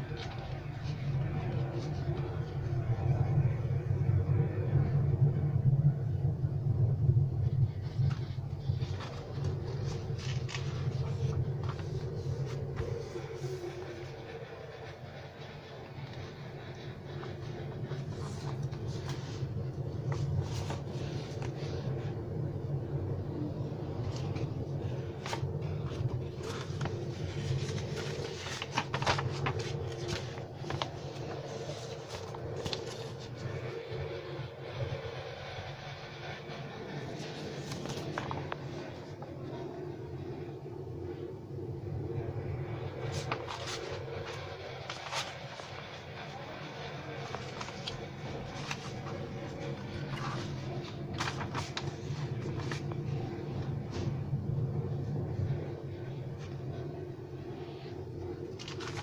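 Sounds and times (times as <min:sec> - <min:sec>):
paper rustling and pages turning: 0:00.0 - 0:02.8, 0:07.4 - 0:22.2, 0:23.8 - 0:33.7, 0:37.0 - 0:39.6, 0:42.9 - 0:54.2, 0:58.5 - 0:59.0
steady low hum: 0:00.0 - 0:59.0.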